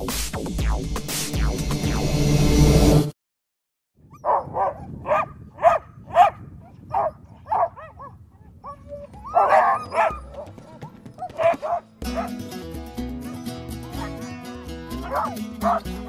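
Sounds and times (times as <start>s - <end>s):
dogs barking and yipping: 4.1s - 12.4s, 13.8s - 14.2s, 14.9s - 16.0s.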